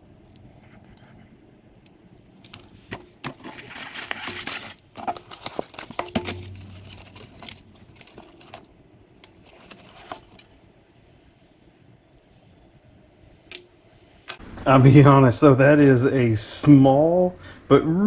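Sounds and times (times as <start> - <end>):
packaging rustling and crinkling: 2.2 - 14.4.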